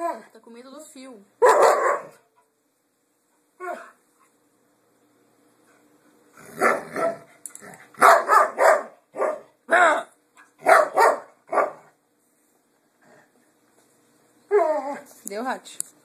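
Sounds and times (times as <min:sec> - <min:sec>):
dog barking: 0:01.4 - 0:02.2, 0:06.6 - 0:07.3, 0:08.0 - 0:09.8, 0:10.6 - 0:11.9.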